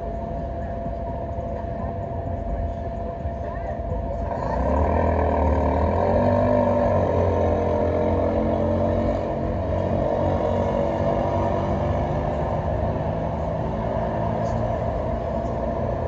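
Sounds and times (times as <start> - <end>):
car engine humming: 3.9 - 16.0.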